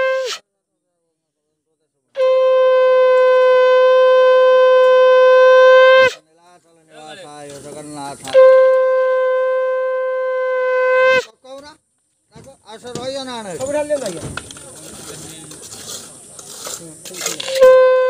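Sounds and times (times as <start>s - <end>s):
conch shell blown: 0.0s - 0.4s, 2.2s - 6.2s, 8.3s - 11.4s, 17.4s - 18.0s.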